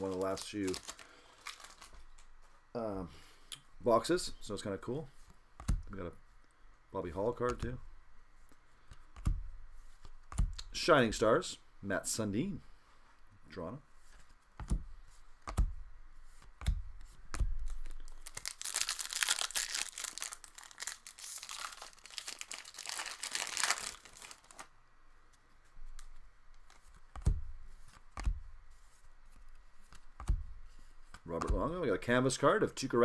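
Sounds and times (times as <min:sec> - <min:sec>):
card pack wrapper tearing and crinkling: 0:00.0 - 0:02.2, 0:17.6 - 0:24.7
soft taps of cards handled: 0:16.4 - 0:17.8, 0:25.3 - 0:28.5, 0:29.3 - 0:31.7.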